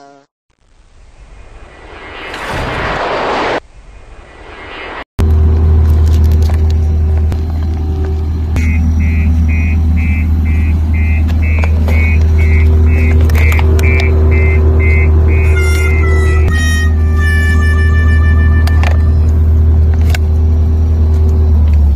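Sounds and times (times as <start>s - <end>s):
brief rush of noise: 1.4s - 5.1s
diesel engine droning: 5.2s - 21.9s
beeping reverse alarm: 8.6s - 19.0s.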